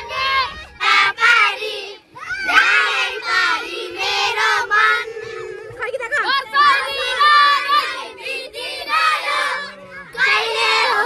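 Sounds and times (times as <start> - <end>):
children shouting and singing: 0.0 - 11.0.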